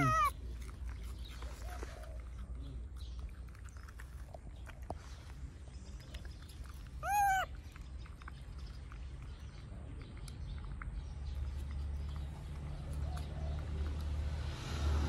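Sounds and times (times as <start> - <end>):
baby monkey high call: 0.0 - 0.3, 7.0 - 7.5.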